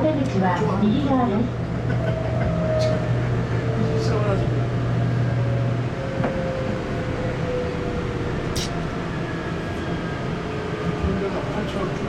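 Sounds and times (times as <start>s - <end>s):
train running and rail noise: 0.0s - 12.0s.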